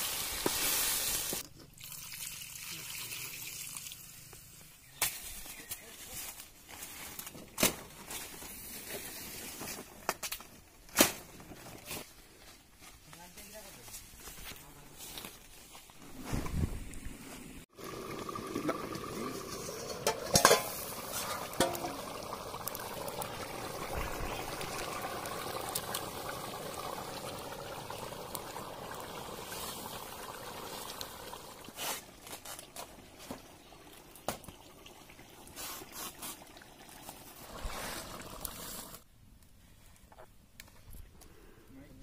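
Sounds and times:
gravy boiling in a wok: 17.7s - 39.1s
metal lid clanking: 19.5s - 22.0s.

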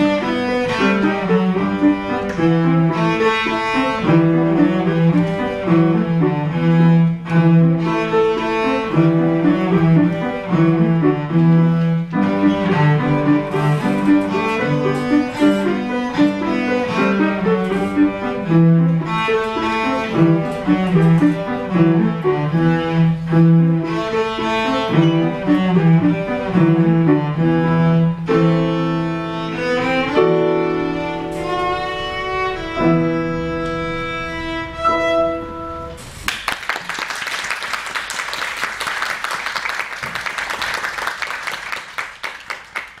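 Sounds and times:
cello: 0.0s - 36.0s
grand piano: 0.0s - 43.0s
audience applauding: 36.2s - 43.0s.

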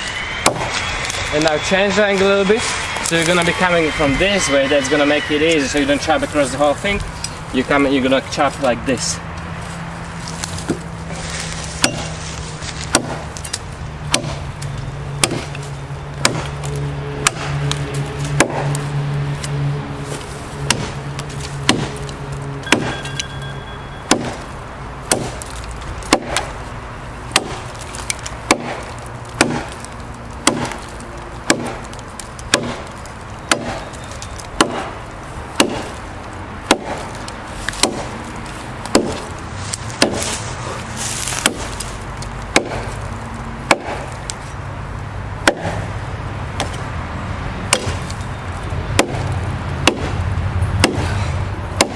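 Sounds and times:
knife chopping into wood: 11.8s - 12.2s, 12.9s - 13.3s, 14.1s - 14.4s, 15.2s - 15.5s, 16.2s - 16.5s, 20.7s - 21.0s, 21.6s - 22.0s, 22.7s - 23.2s, 24.1s - 24.4s, 25.1s - 26.5s, 27.3s - 30.9s, 31.5s - 31.9s, 32.5s - 32.9s, 33.5s - 33.8s, 34.6s - 34.9s, 35.6s - 36.0s, 36.7s - 38.1s, 38.8s - 39.3s, 40.0s - 40.4s, 41.3s - 41.8s, 42.5s - 43.0s, 43.7s - 44.1s, 45.4s - 45.8s, 47.7s - 48.1s, 49.0s - 50.2s, 50.8s - 51.9s.

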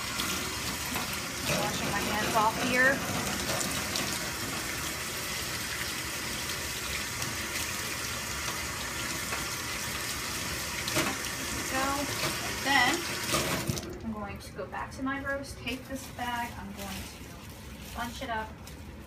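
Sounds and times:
faucet running into a metal sink: 0.0s - 14.0s.

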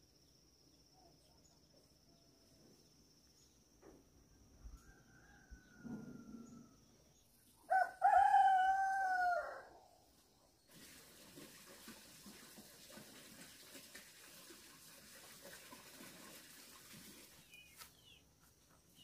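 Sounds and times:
rooster crowing: 4.7s - 6.8s, 7.7s - 9.8s.

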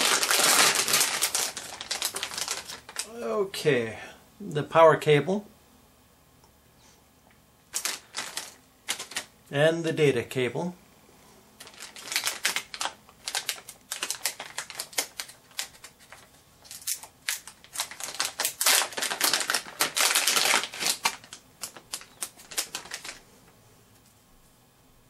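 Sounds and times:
foil bag crinkling: 0.0s - 3.2s, 7.7s - 9.3s, 11.6s - 23.3s.

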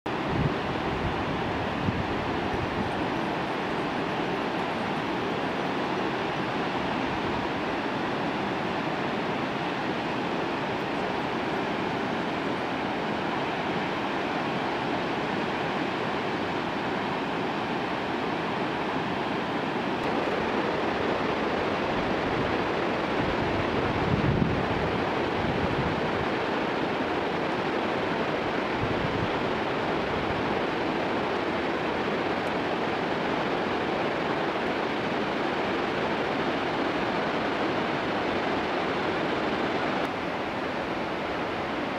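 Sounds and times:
river rushing over rapids: 0.1s - 41.9s
wind buffeting microphone: 0.2s - 3.2s, 20.0s - 40.0s.

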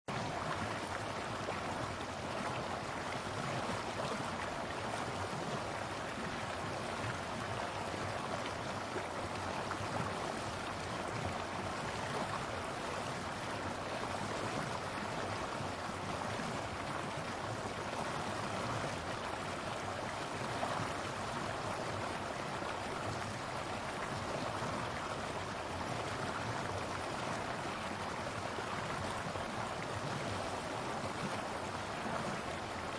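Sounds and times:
water rushing over rocks: 0.1s - 32.9s.

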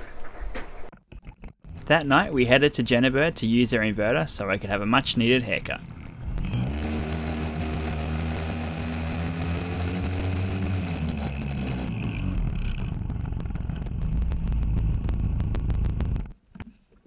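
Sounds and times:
small outboard motor running: 6.0s - 13.8s.

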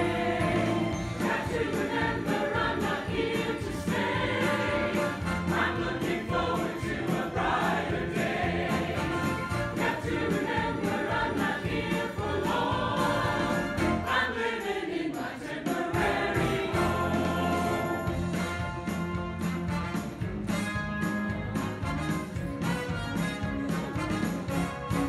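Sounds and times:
church choir singing in parts: 0.0s - 18.4s.

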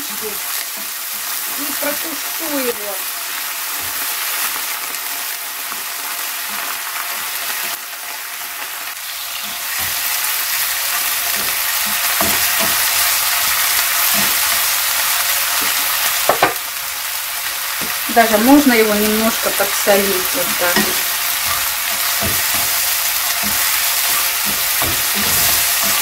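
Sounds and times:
onions sizzling in a frying pan: 0.0s - 26.0s
wooden spatula scraping a pan: 19.2s - 26.0s.

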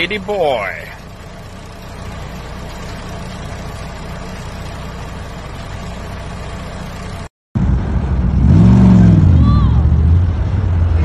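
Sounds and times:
diesel truck engine idling: 0.0s - 8.4s.

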